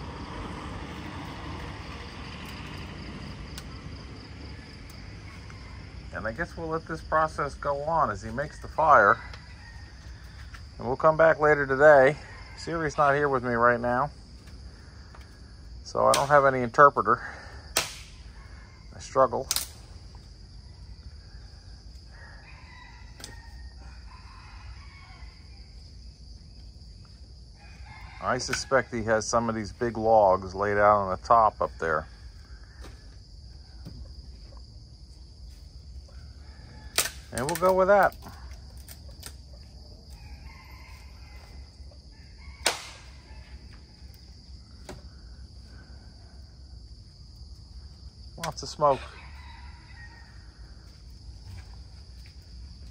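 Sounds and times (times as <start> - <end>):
rooster crowing: 4.2 - 6.8, 7.4 - 10.7, 11.8 - 13.4, 18.2 - 19.0, 20.4 - 26.0, 27.4 - 29.8, 35.7 - 38.6, 39.5 - 48.0, 48.6 - 52.9
sharp clicks: 19.5 - 19.8.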